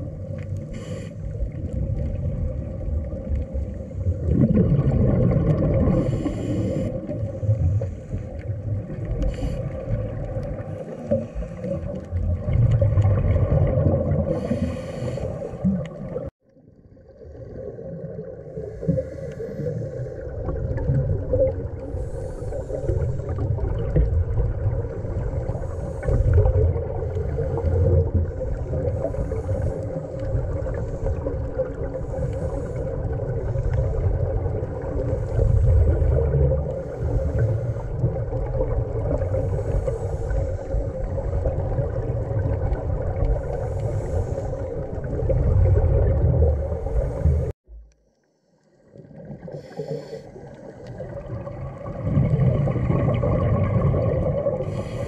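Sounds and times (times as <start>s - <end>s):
steady underwater hum: 0.0s - 55.0s
regulator exhaust bubbles gurgling: 1.3s - 6.2s, 11.7s - 14.6s, 40.8s - 48.0s, 50.9s - 54.8s.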